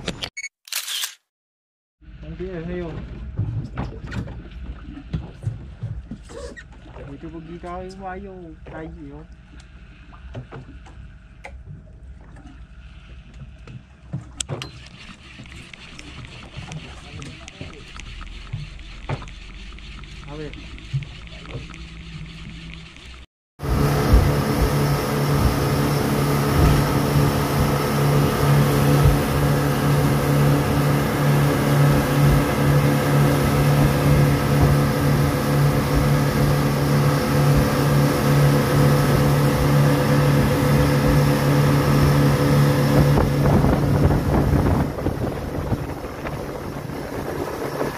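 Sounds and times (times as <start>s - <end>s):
motorboat engine running: 2.0s - 47.9s
wind and water noise: 2.0s - 47.9s.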